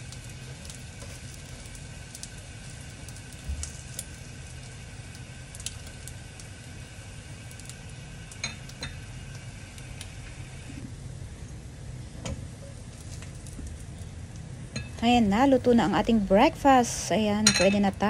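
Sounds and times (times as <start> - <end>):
bread sizzling in oil: 0.0 - 18.0.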